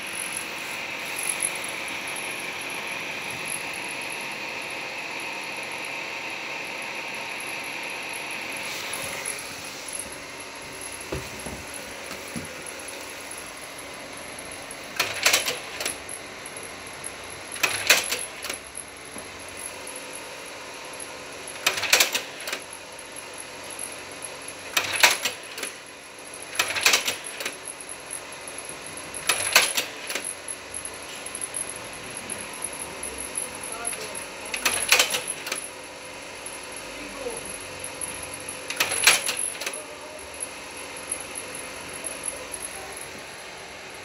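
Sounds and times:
cooling fan hum: 0.0 - 44.0
slide projector clattering clicks: 26.6 - 27.5, 34.5 - 35.6.

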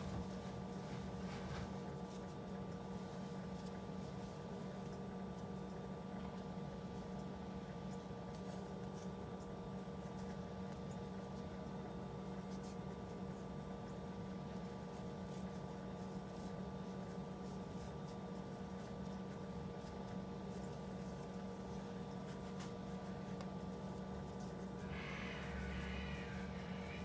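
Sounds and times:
steady low hum: 0.0 - 27.0
yarn scratching on crochet hook: 22.0 - 27.0.

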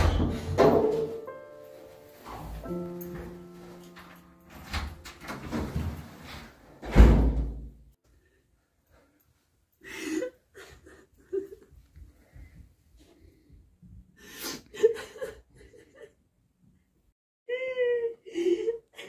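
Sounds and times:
door slamming: 0.0 - 1.3, 6.8 - 7.8
sustained music notes: 1.1 - 5.7.

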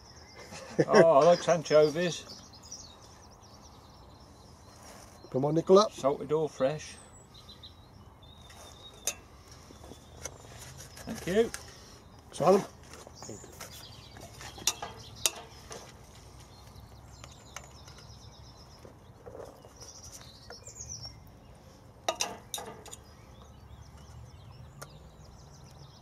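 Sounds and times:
birds chirping faintly: 0.0 - 26.0
metal tongs clinking on a pot: 9.0 - 9.3, 14.6 - 15.6, 22.1 - 23.0.

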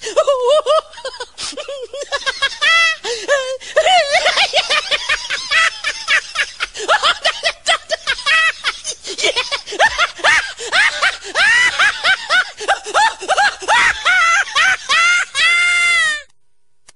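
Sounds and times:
high-pitched cackling laughter: 0.0 - 16.3.

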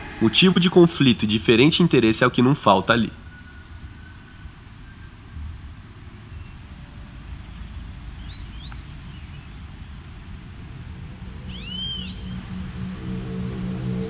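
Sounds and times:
low rumbling background: 0.0 - 14.0
small birds chirping: 5.4 - 12.6.

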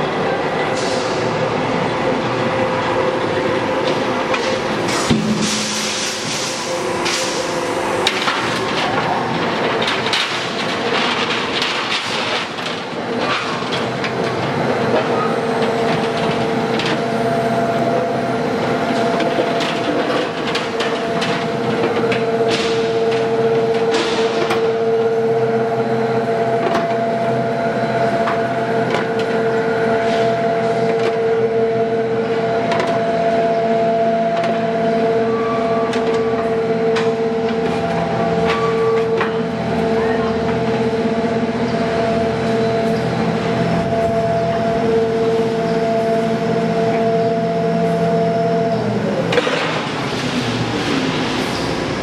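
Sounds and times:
roll forming machine hum: 0.0 - 52.0
higher machine tone: 14.9 - 49.7.

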